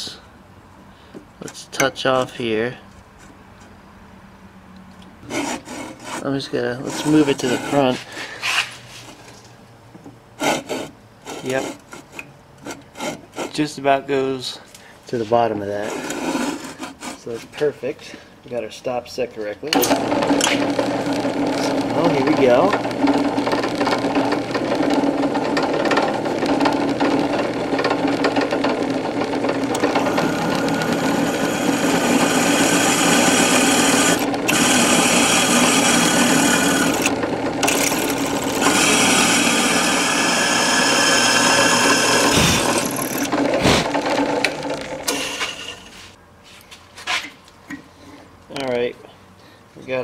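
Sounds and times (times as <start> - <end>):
drill bit grinding into iron: 19.8 - 45.9
drill press motor hum: 19.8 - 45.9.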